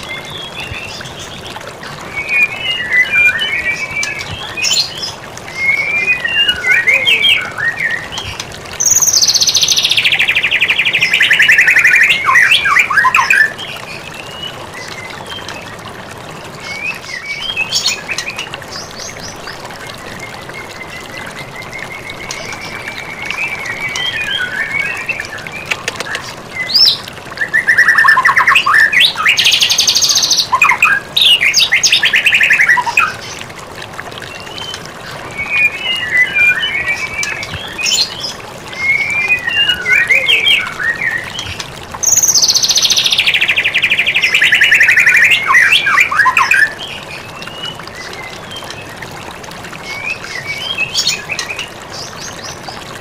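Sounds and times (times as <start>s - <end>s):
bird singing whistled phrases: 5.5s - 8.1s, 8.8s - 13.5s, 35.4s - 38.1s, 38.8s - 46.8s.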